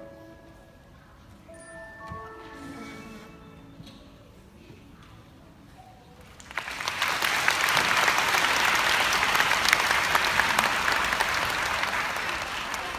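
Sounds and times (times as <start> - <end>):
audience applauding: 6.4 - 12.9.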